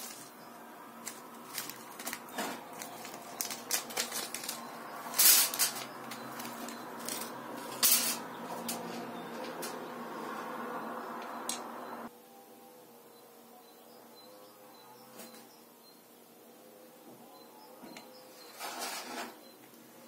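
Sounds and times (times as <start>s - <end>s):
plastic bag crinkling: 0.0s - 0.3s, 1.0s - 7.8s
nuts clattering onto metal tabletop: 6.5s - 8.8s.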